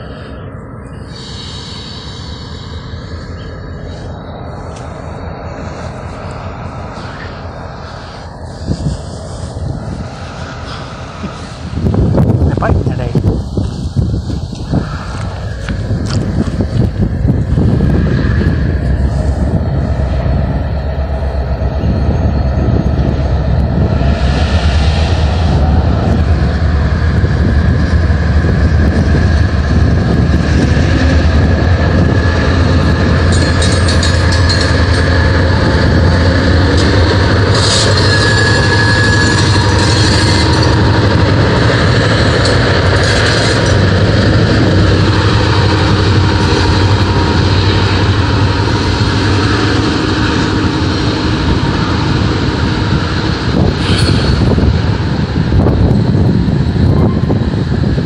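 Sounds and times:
metallic wheel squeal and hiss: 0.0 - 12.0, 32.2 - 44.4, 53.8 - 54.7
diesel locomotive engine drone: 0.0 - 58.0
freight cars rolling past: 0.0 - 58.0.

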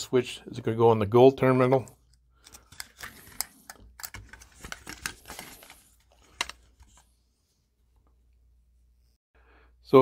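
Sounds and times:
plastic clicks and rustles: 2.1 - 7.1.

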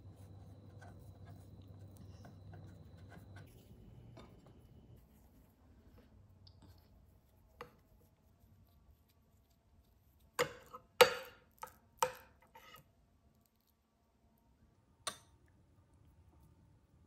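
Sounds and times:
hands handling soft dough: 0.0 - 10.4.

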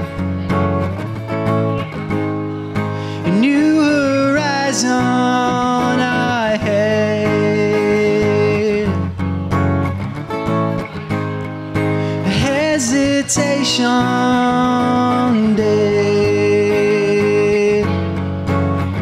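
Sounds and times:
acoustic guitar strumming: 0.0 - 19.0
man singing: 3.1 - 9.2, 12.0 - 19.0.

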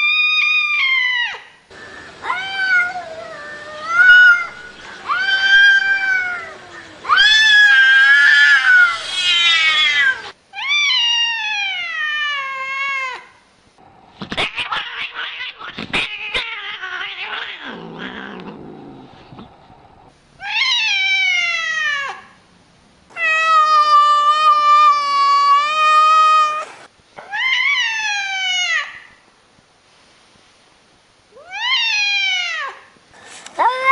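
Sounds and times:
cat meowing: 2.2 - 13.2, 14.3 - 18.8, 33.6 - 33.9
cats yowling: 2.2 - 13.2, 14.2 - 19.5, 20.4 - 22.3, 23.1 - 29.1, 31.4 - 32.8, 33.6 - 33.9.

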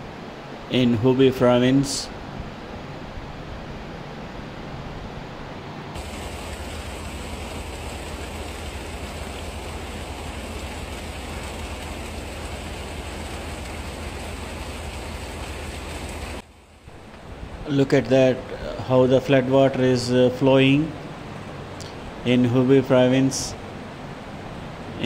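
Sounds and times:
flood water rushing: 6.0 - 19.5, 23.5 - 25.0.

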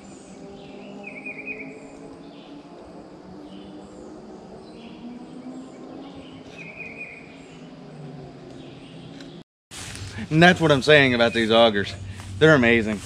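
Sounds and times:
birds chirping: 0.0 - 9.4, 10.2 - 13.0
low steady drone: 0.0 - 13.0
bird trilled call: 0.6 - 2.6, 4.7 - 7.7.

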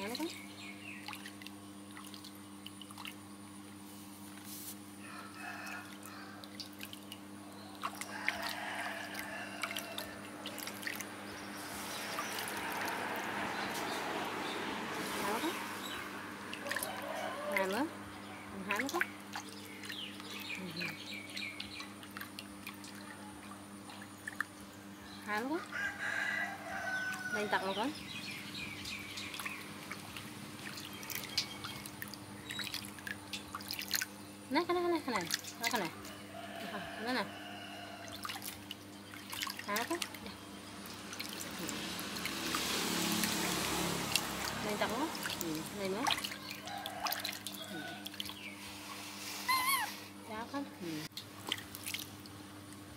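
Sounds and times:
faint steady hum: 0.0 - 41.5
water dripping in a steel basin: 1.0 - 3.2, 5.6 - 11.2, 11.9 - 14.6, 15.8 - 17.9, 18.5 - 25.6, 27.1 - 36.2, 38.0 - 48.4.

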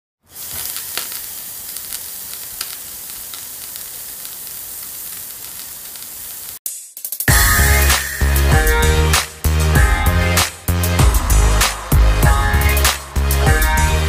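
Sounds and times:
vinyl crackle hiss: 0.2 - 6.6.

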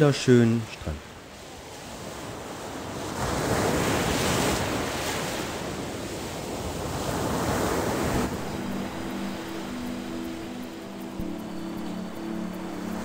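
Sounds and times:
surf washing onto beach: 1.2 - 10.9.

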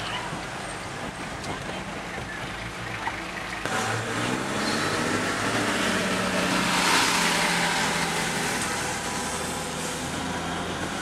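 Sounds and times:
car engine hum inside cabin: 3.6 - 11.0
vehicle passing: 3.6 - 11.0
tyre hiss on wet road: 6.7 - 10.6.

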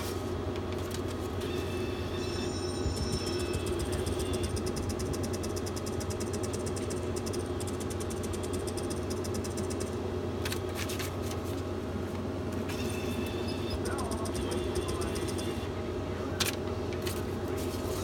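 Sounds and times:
electronic ticks: 3.5 - 10.0.

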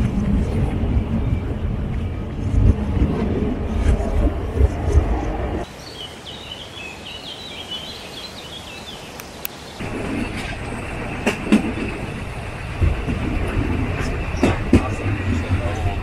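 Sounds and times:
birds chirping: 5.6 - 12.1
train wheels rumbling: 9.8 - 16.0
wheels clacking over rail joints: 9.8 - 16.0.

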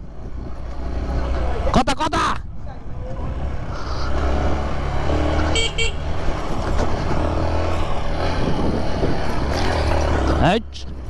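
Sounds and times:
motorcycle engine rumble: 2.4 - 11.0
horn beeps: 5.5 - 6.1.

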